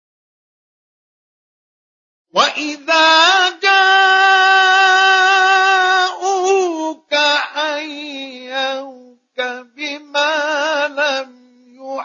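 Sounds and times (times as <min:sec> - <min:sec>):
man chanting: 0:02.4 - 0:12.0.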